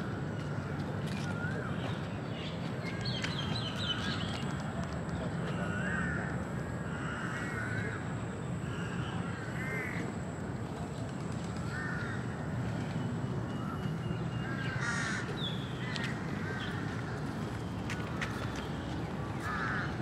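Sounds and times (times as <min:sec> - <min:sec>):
birds calling: 0:13.5 - 0:17.3.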